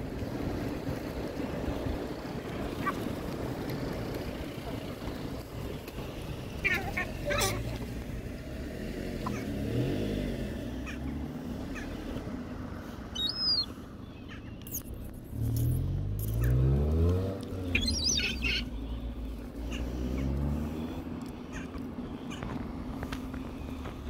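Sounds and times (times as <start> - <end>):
cars driving past: 0.0 - 24.0
car engine speeding up: 6.2 - 12.2, 15.2 - 21.3
gull calls: 17.7 - 18.8, 21.5 - 22.5.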